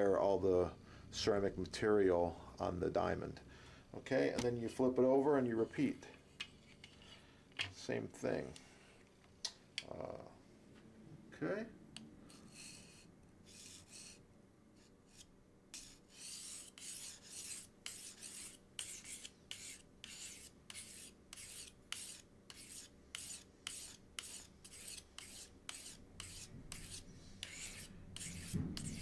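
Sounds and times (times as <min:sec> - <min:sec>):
knife rasping on a diamond sharpener: 0:12.3 - 0:14.2, 0:14.8 - 0:29.0.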